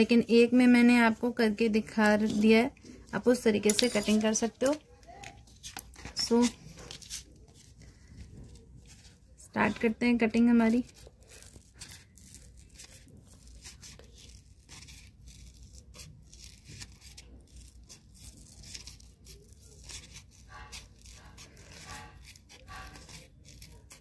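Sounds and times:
scissors snipping sheet: 3.6s - 7.1s, 14.0s - 24.0s.

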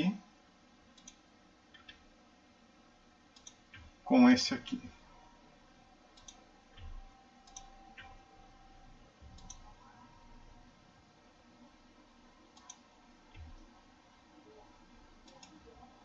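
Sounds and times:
computer mouse clicks: 0.9s - 2.1s, 3.3s - 4.0s, 6.1s - 8.2s, 9.2s - 9.8s, 12.5s - 13.7s, 15.2s - 15.7s.

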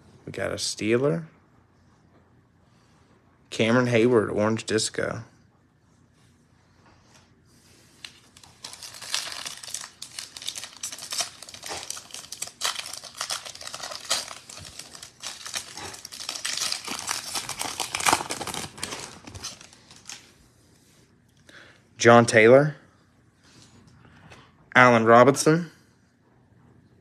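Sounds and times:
foil pack crinkling and tearing: 8.0s - 20.3s.

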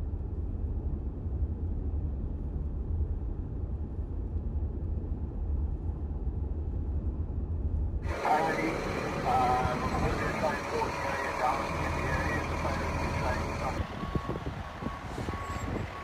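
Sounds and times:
vehicle road and engine noise: 8.0s - 16.0s.

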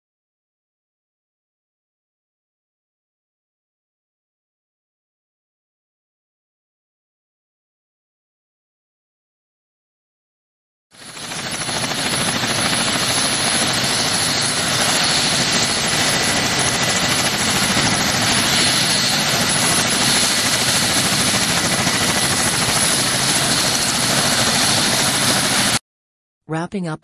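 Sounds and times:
helicopter rotor and engine noise: 11.0s - 25.8s.

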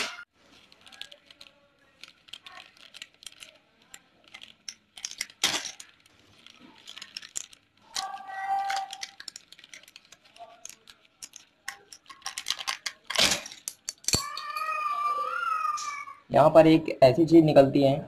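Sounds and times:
plastic packet crinkling: 0.0s - 14.0s
metal pliers clicking: 10.6s - 14.5s.

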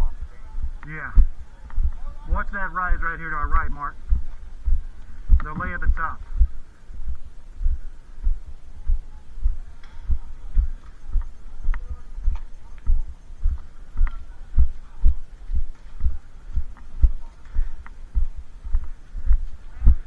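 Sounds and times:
faint high sounds: 0.0s - 20.0s
deep even thumps: 4.0s - 10.8s.

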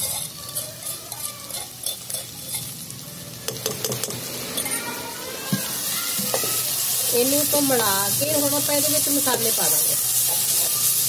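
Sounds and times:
sizzling in hot oil: 0.0s - 11.0s.

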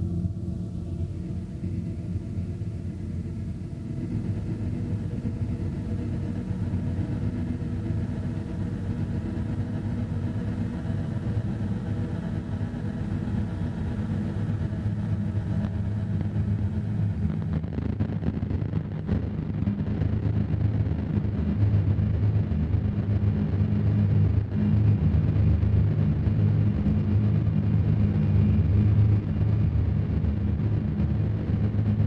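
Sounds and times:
distorted harsh noise drone: 13.1s - 32.0s.

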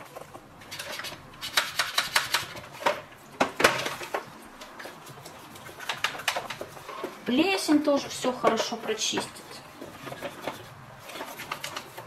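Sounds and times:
brush scrubbing plastic: 4.4s - 12.0s.

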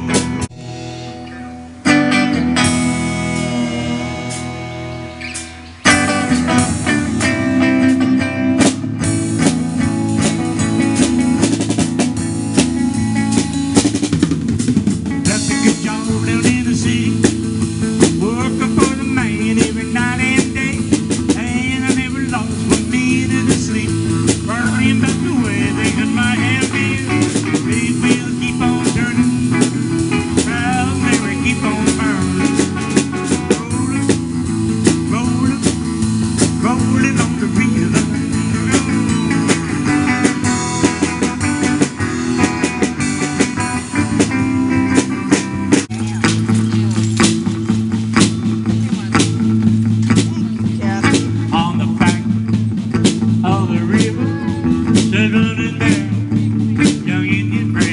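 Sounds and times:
drum kit steady beat: 0.0s - 57.9s
lead guitar bending notes: 0.0s - 57.9s.

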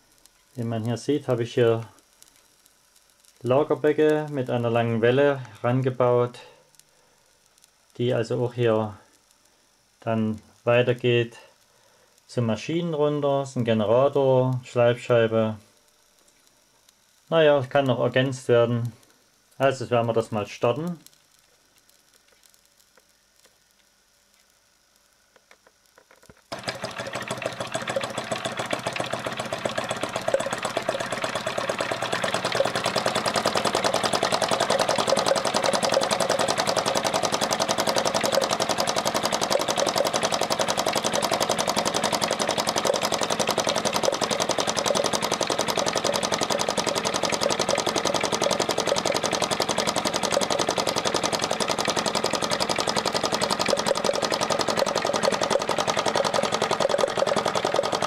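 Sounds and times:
model engine clattering: 26.5s - 58.0s.

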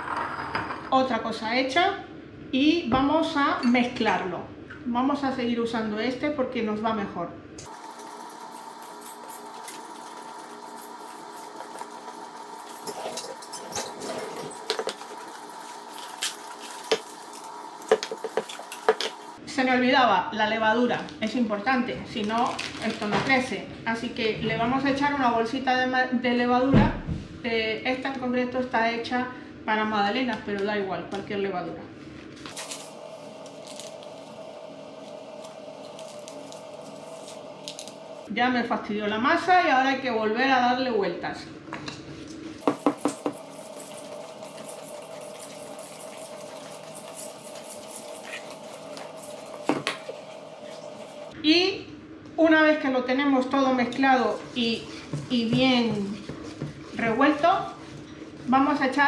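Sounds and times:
steady background hum: 0.1s - 59.0s
paper sachet crinkling: 7.7s - 13.0s, 14.5s - 19.4s, 32.5s - 38.1s, 43.0s - 51.2s
whisk scraping in metal bowl: 7.8s - 19.4s, 42.6s - 51.4s, 53.9s - 59.0s.

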